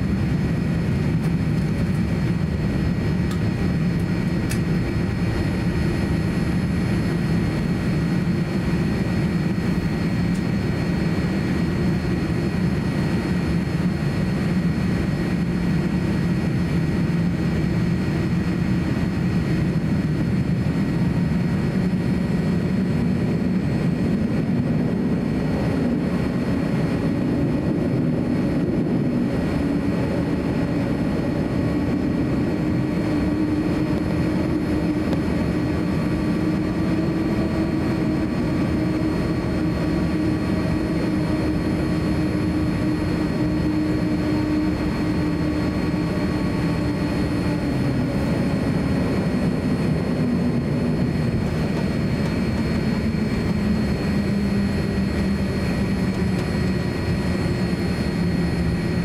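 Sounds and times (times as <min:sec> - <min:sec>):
faint whine tones: 0:00.0 - 0:59.0
jet engines idling: 0:00.0 - 0:59.0.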